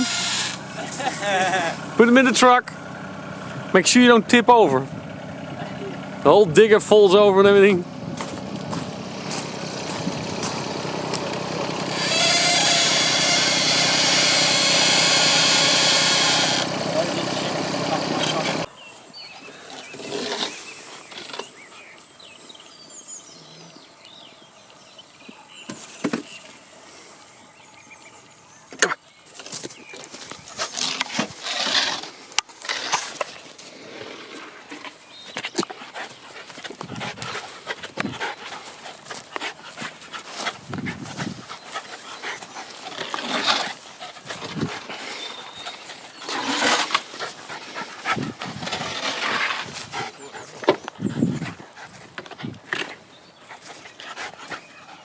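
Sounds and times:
rustling and scuffling on grass: 0:08.0 - 0:10.8, 0:29.2 - 0:54.9
dog noises: 0:34.4 - 0:55.0.

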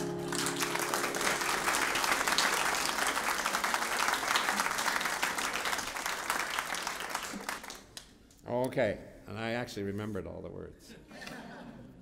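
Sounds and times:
classical guitar notes: 0:00.0 - 0:01.7
audience applauding: 0:00.0 - 0:08.0.

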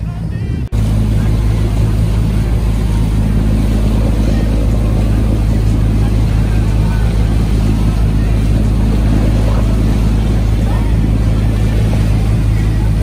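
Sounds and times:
motorboat engine droning: 0:00.0 - 0:13.0
water rushing: 0:00.0 - 0:13.0.

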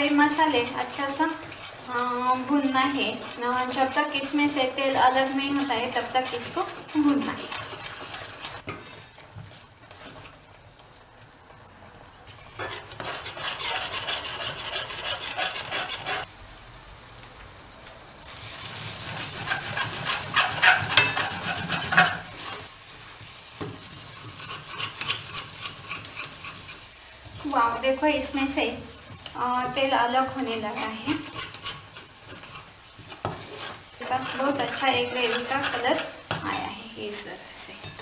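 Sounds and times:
steel spoon scraping pan: 0:00.0 - 0:09.1, 0:12.4 - 0:16.3, 0:19.1 - 0:22.7, 0:24.1 - 0:26.9, 0:29.2 - 0:38.0
paste sizzling in hot oil: 0:00.0 - 0:09.2, 0:18.2 - 0:38.0.

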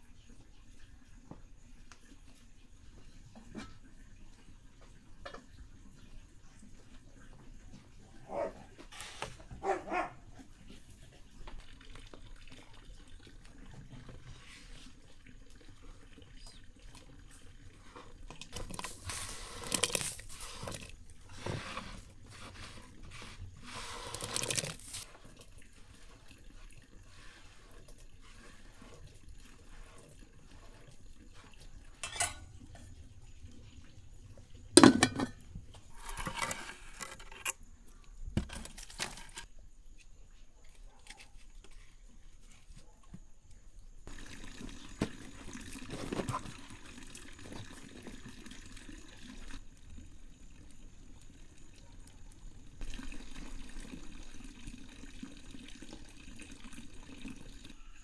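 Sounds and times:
liquid noise: 0:11.2 - 0:37.5, 0:44.0 - 0:58.0
dishes and utensils clinking: 0:32.0 - 0:32.8, 0:34.8 - 0:35.4.

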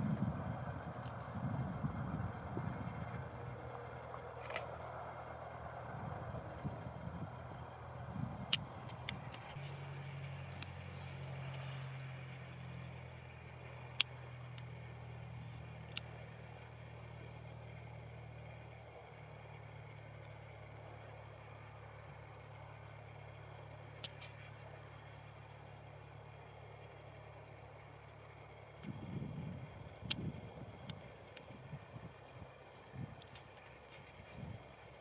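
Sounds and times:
propeller aircraft engine humming: 0:00.0 - 0:35.0
sharp clicks: 0:04.0 - 0:04.9, 0:15.8 - 0:16.2, 0:24.0 - 0:24.5.

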